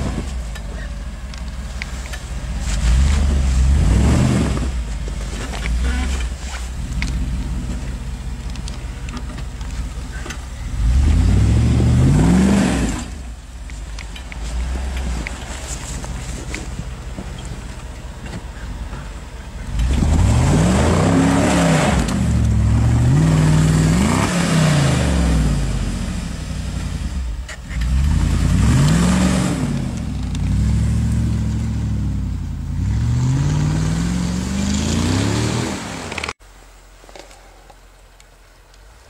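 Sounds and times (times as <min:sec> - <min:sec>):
engine revving hard: 0:02.8 - 0:04.7, 0:10.8 - 0:13.2, 0:19.7 - 0:26.0, 0:27.8 - 0:36.2.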